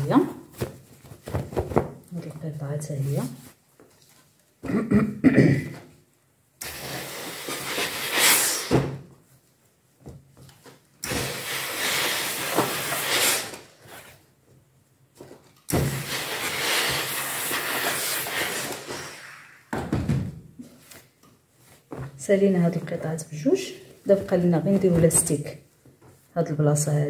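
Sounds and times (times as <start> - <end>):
steam iron hissing: 6.6 - 8.9, 11.0 - 13.6, 15.7 - 19.6.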